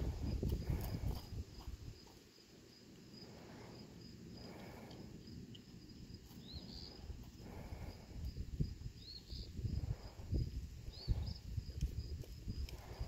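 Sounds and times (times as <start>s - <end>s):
pulsing high insect chirping: 0.0s - 13.0s.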